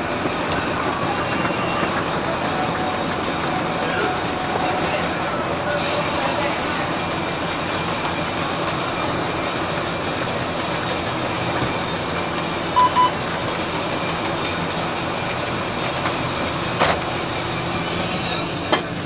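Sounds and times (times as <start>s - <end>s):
bus engine and road rumble: 0.0s - 19.0s
short electronic beeps: 12.8s - 13.2s.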